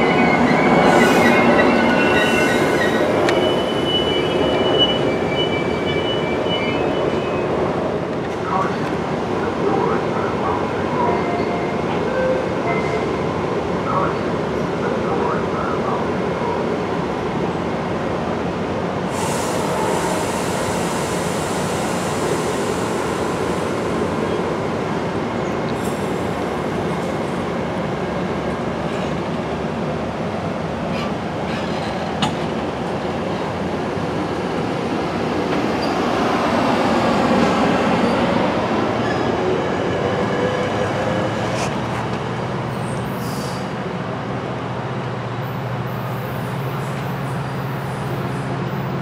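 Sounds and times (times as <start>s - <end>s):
train wheels rumbling on rails: 19.0s - 49.0s.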